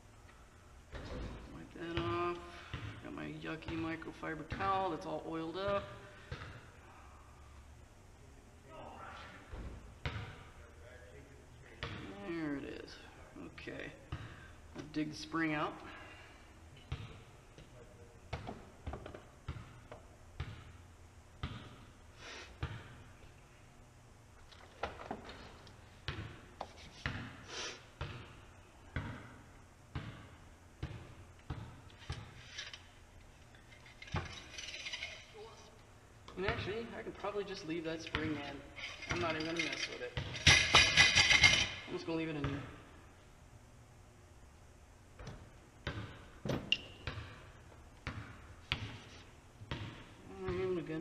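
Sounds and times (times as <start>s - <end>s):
metal parts knocking and clinking: 38.8s - 41.7s.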